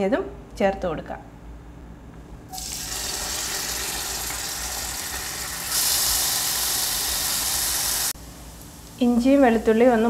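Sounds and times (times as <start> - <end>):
garlic sizzling in hot oil: 2.5 - 10.0.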